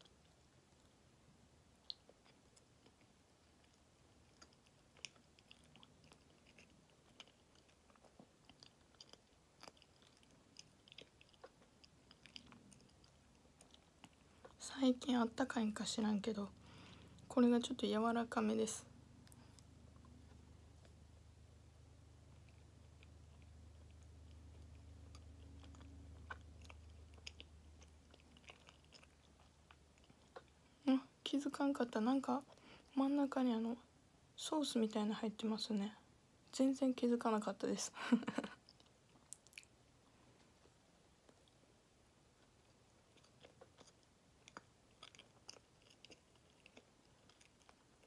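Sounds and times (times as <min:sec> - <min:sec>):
low steady hum: 0:00.0 - 0:48.0
mouth chewing with wet clicks: 0:01.7 - 0:17.8, 0:18.9 - 0:21.1, 0:21.9 - 0:30.8, 0:38.5 - 0:41.6, 0:42.3 - 0:48.0.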